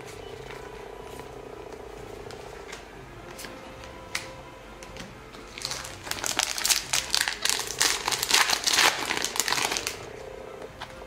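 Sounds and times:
foil wrapper crinkling: 5.5 - 10.2.

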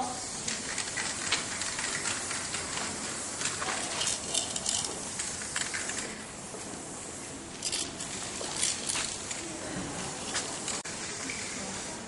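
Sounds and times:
outdoor background noise: 0.0 - 12.0
spray paint can hissing: 0.3 - 6.3, 7.1 - 9.4.

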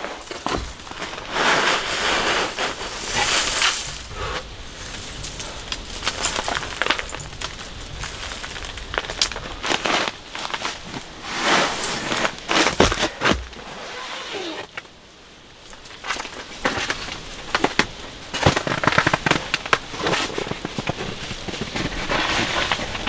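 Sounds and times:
rustling: 0.0 - 23.0
small clinks and knocks: 2.8 - 9.6.

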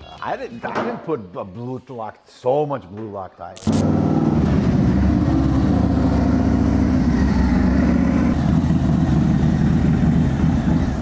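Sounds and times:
motorcycle engine running loudly: 3.8 - 11.0.

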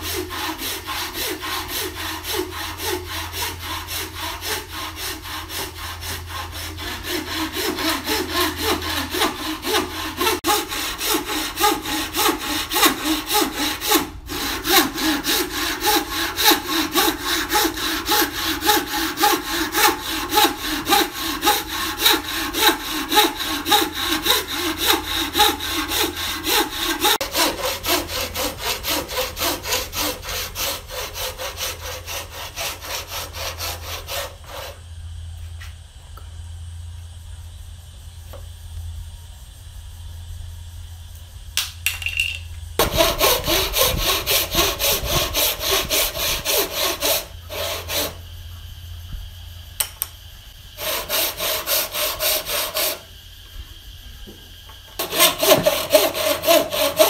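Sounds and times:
hand saw cutting wood: 0.0 - 34.8, 42.8 - 48.2, 50.8 - 53.1, 55.0 - 57.0.

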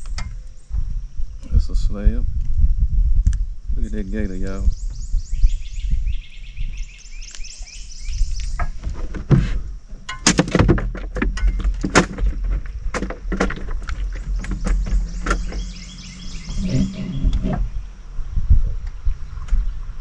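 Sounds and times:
knocks and clatter on a boat: 8.6 - 15.8.

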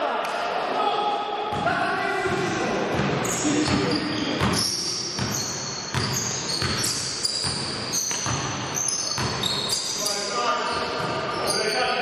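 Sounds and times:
basketball bouncing: 2.3 - 9.5
shoes squeaking on floor: 3.2 - 12.0.

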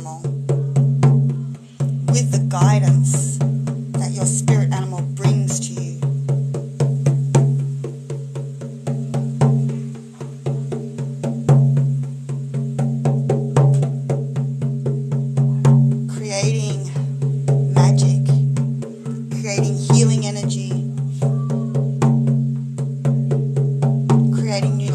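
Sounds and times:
frame drum beating: 0.0 - 24.9
woman singing or chanting: 2.1 - 3.4, 4.0 - 6.0, 16.1 - 17.1, 17.8 - 18.5, 19.2 - 20.8, 24.4 - 24.9.

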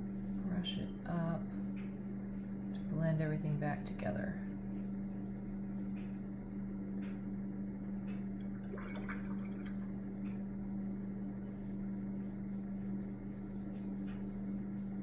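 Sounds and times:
steady low hum: 0.0 - 15.0
paint brush scratching: 11.4 - 15.0.

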